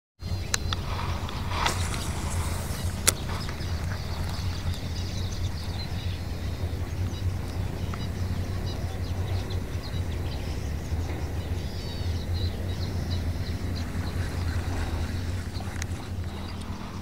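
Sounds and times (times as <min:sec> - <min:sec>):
low rumble: 0:00.3 - 0:17.0
fishing rod swish: 0:01.1 - 0:04.7
sharp reel click: 0:01.4 - 0:04.8.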